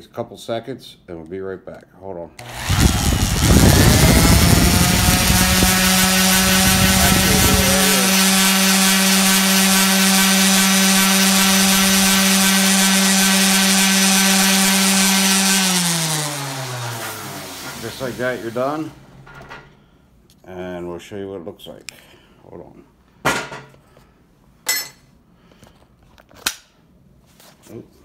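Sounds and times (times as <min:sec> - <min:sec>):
orbital sander on wood: 0:02.4 - 0:19.0
orbital sander whining freely: 0:02.4 - 0:19.0.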